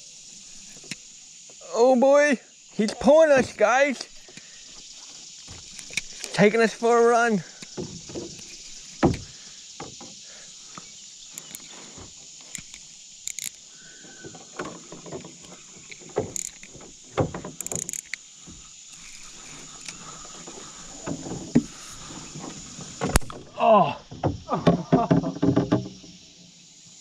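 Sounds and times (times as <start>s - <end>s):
steady high hiss: 0.0s - 27.0s
knocks on canoe hull: 9.0s - 10.2s, 14.6s - 17.6s, 24.1s - 26.0s.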